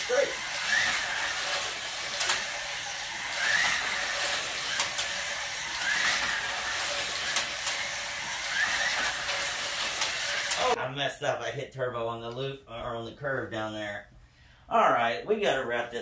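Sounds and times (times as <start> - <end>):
rising whine: 0.0 - 10.8
slot car motor whir: 0.0 - 10.8
sharp clicks: 0.5 - 10.7.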